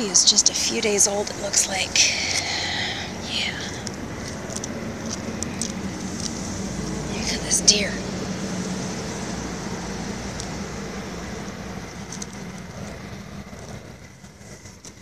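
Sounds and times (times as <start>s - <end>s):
vehicle passing on road: 0.0s - 15.0s.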